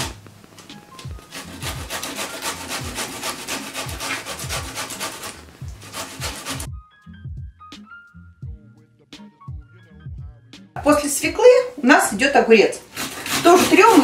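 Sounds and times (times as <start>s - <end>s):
grater shredding: 0.0s - 6.7s, 12.8s - 14.0s.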